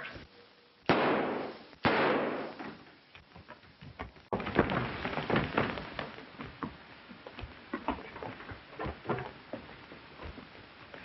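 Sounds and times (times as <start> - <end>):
knocks and scuffling: 2.6 - 11.0.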